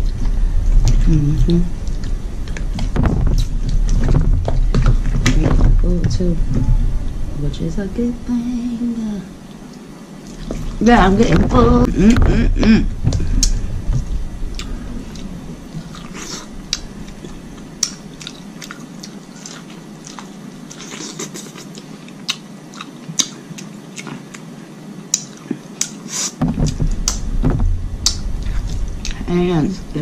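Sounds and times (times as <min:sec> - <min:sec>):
biting and chewing: 0:01.8 - 0:05.4, 0:11.9 - 0:24.5
louder deeper sound: 0:26.4 - 0:30.0.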